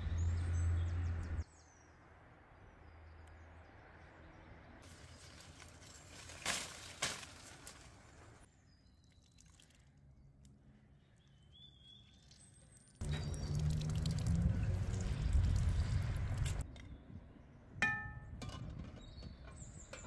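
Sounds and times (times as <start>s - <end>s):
leaves and branches rustling: 4.8s - 8.5s
bird chirping: 10.9s - 14.0s.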